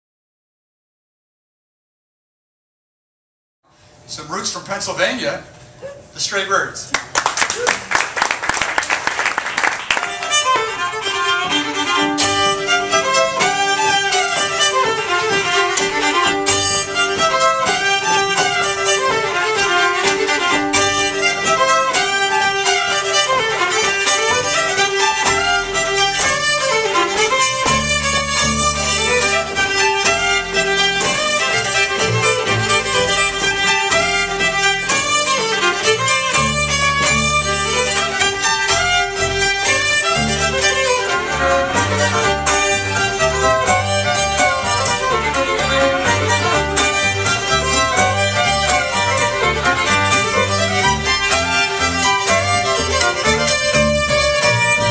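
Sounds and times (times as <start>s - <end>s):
applause: 6.9s - 10.4s
two fiddles playing folk tune: 9.8s - 54.9s
upright bass low notes: 25.2s - 54.9s.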